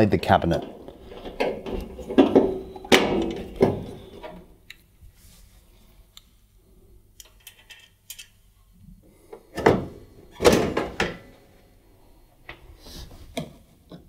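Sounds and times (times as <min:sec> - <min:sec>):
metal panel knocking and rattling: 0:00.6 - 0:04.4.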